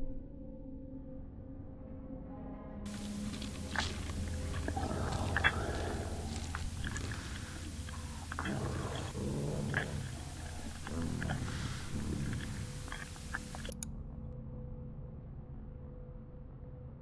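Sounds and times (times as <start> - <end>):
static hiss: 2.9 - 13.7
wet chewing and biting: 2.9 - 13.8
low hum: 2.9 - 16.9.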